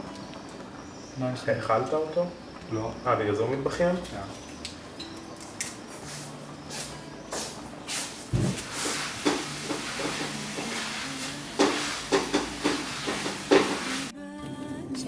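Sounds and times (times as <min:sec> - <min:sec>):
brush strokes through dog fur: 0:06.0 - 0:12.0.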